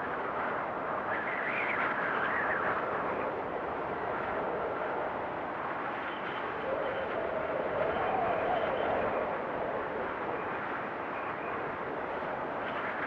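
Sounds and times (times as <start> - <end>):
strong blizzard wind: 0.0 - 13.0.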